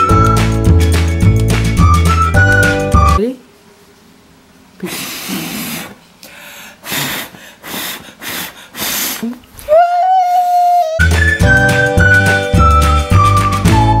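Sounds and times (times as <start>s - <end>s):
breath puffs blowing out candles: 4.8s - 11.1s.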